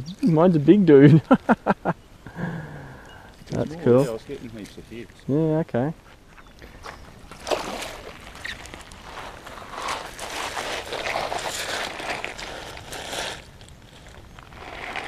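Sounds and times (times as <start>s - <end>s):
river water splashing: 6.8s - 13.2s
sharp splash: 7.3s - 8.7s.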